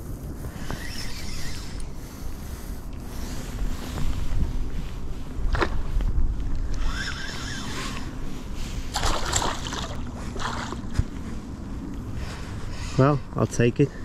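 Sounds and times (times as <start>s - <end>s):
wind buffeting microphone: 0.0s - 13.9s
fish splashing in water: 8.9s - 11.0s.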